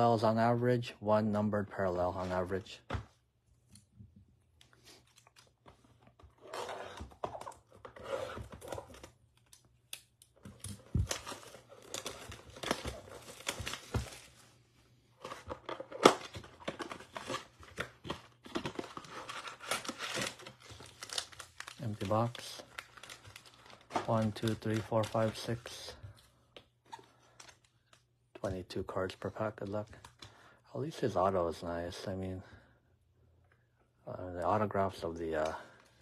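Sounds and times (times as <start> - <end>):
plastic wrap tearing and crinkling: 6.3 - 14.5, 15.2 - 25.4
foil card packs rustling: 10.5 - 26.4.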